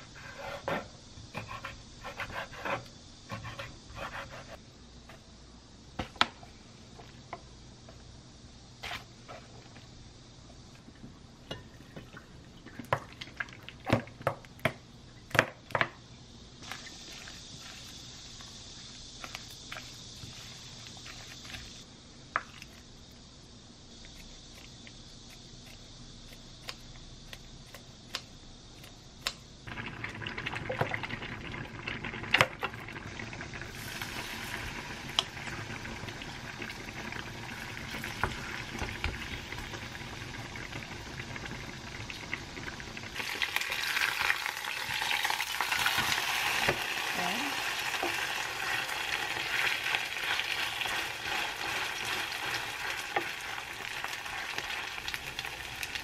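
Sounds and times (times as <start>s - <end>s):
batter sizzling in pan: 16.5s - 22.9s, 29.5s - 56.0s.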